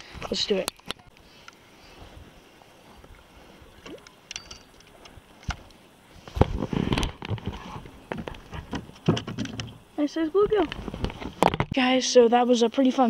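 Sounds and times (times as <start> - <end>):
faint water: 0.0 - 13.0
splashing and thumps: 6.3 - 9.8.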